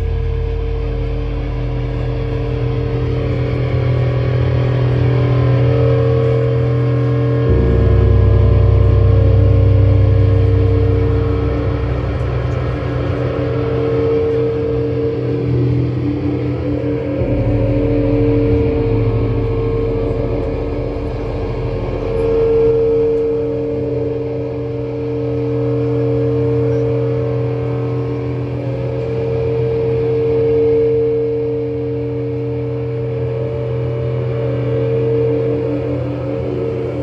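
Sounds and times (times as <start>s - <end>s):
distorted guitar and bass drone: 0.0s - 37.0s.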